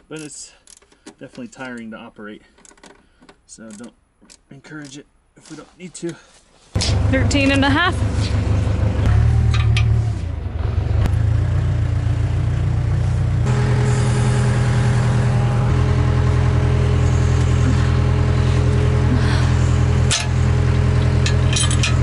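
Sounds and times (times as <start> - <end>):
backhoe diesel engine running: 6.8 - 22.0.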